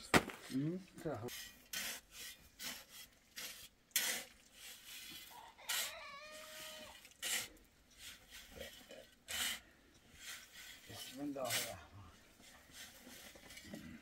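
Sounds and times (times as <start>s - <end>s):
scraping rasping strokes: 1.2s - 14.0s.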